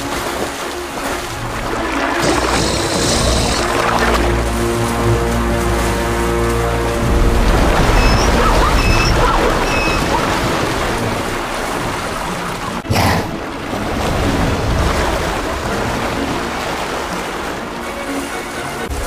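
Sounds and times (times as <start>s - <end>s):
loud splash: 0.0s - 18.3s
water churning and splashing: 0.0s - 19.0s
short high chirps: 7.9s - 10.2s.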